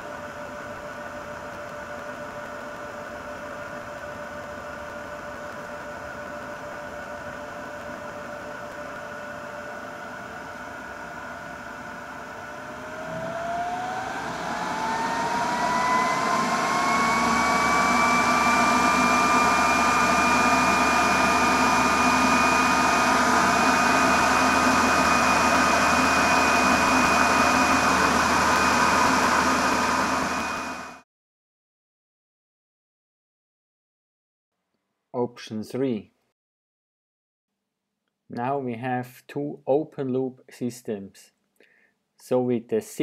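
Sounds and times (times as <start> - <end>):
blower fan whine: 0.0 - 31.0.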